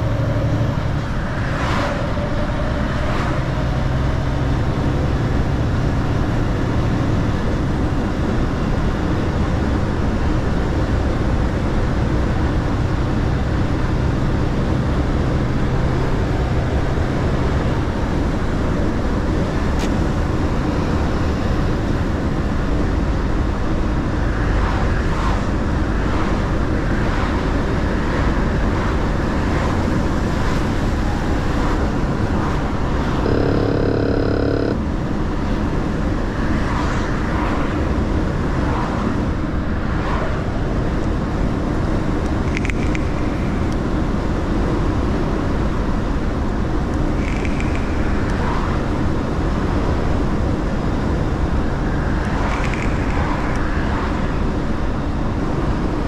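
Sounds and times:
truck engine and road noise: 0.0 - 56.0
short pitched tone: 33.2 - 34.8.

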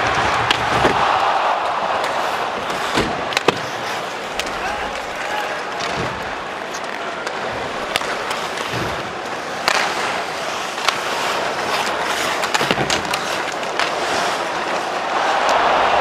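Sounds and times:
arena crowd noise: 0.0 - 16.0
hockey sticks and puck clacking: 0.0 - 16.0
skates scraping on ice: 0.0 - 16.0.

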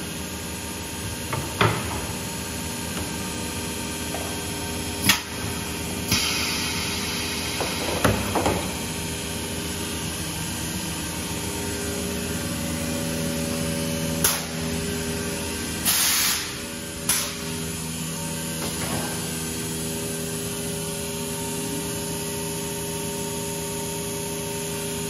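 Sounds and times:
machine humming: 0.0 - 25.0
short hisses of air: 15.8 - 16.5.

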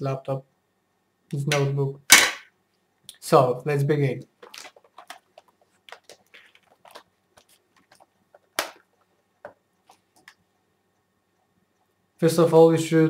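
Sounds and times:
plastic laptop case clicks and rustles: 4.4 - 10.4.

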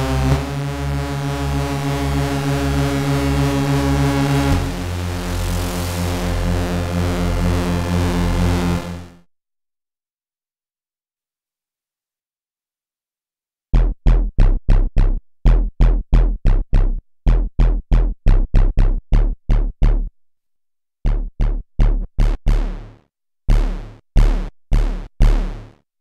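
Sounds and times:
punchy synth bass notes: 0.0 - 9.2, 13.8 - 20.2, 21.0 - 25.8.

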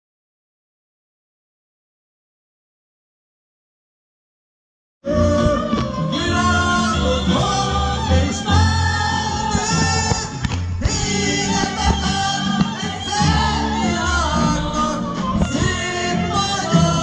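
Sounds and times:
person singing: 5.0 - 17.0
folk-rock band playing: 5.1 - 17.0.

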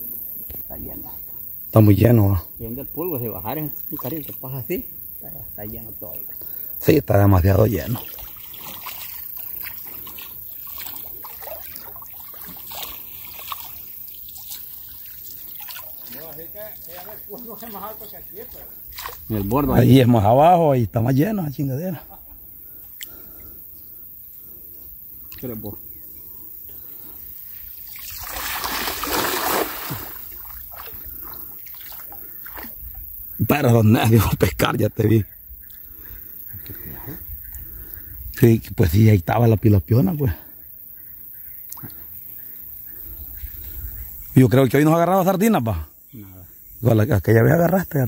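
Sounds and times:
river water sloshing: 8.0 - 19.4, 27.4 - 32.9
splashes of wading: 8.0 - 19.4, 27.5 - 33.0.

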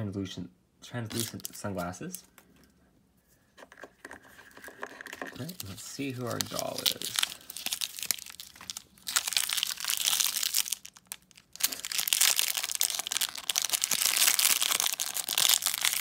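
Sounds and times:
foil wrapper crackling: 5.4 - 16.0.

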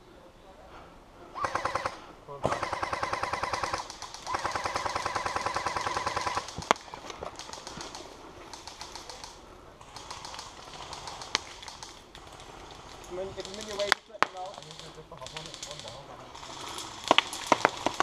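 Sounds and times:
airsoft gun full-auto fire: 1.4 - 8.0
distant rapid gunfire: 1.4 - 9.3.

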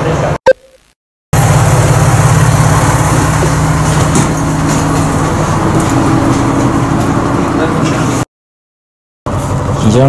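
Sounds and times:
diesel railcar engine drone: 1.4 - 8.2, 9.3 - 10.0.

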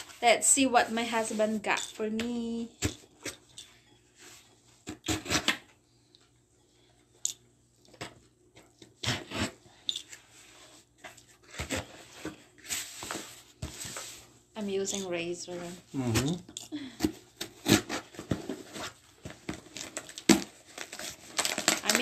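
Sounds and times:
box cutter cutting tape: 5.0 - 5.6, 17.4 - 18.2.

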